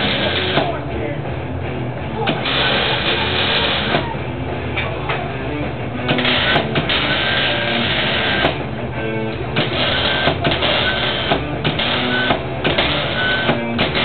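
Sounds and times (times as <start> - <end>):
welding arc crackling: 0.0 - 0.7, 2.4 - 4.0, 6.1 - 8.6, 9.5 - 14.0.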